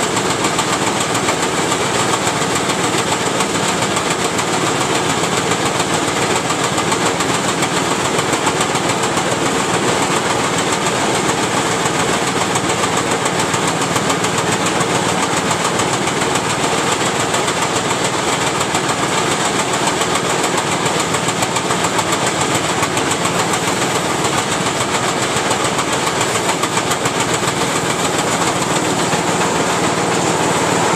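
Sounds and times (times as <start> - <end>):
auger running with rattle: 0.0 - 30.9.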